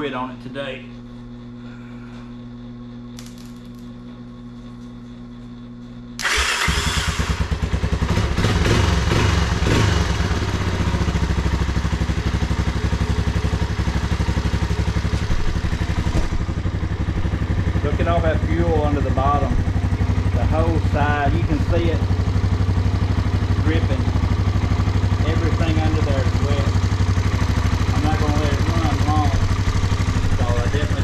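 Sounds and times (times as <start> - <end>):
engine starting and running: 6.2 - 10.9
low hum: 10.2 - 31.0.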